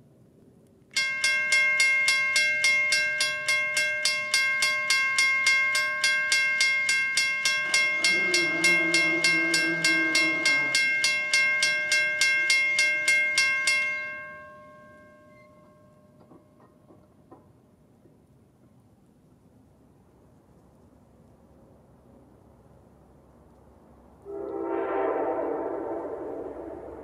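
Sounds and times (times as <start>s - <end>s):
electronic crossing bell ringing: 1.0s - 16.3s
train horn: 8.0s - 11.1s, 24.2s - 27.0s.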